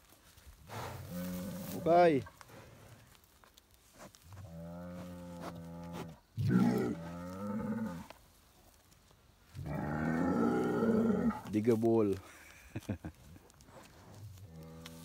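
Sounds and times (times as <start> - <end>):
bulls bellowing: 0.7 - 2.9, 4.4 - 8.1, 9.6 - 11.6.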